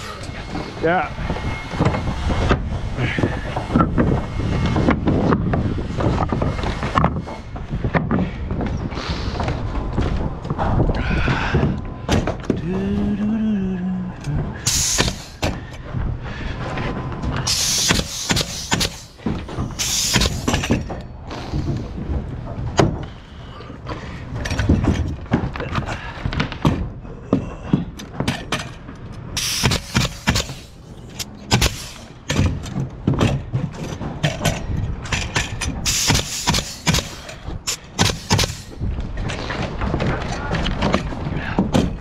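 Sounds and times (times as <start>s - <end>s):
nail gun shots with air hiss: 14.6s - 15.6s, 17.5s - 19.2s, 19.8s - 20.8s, 29.4s - 30.8s, 31.5s - 32.5s, 35.8s - 38.8s.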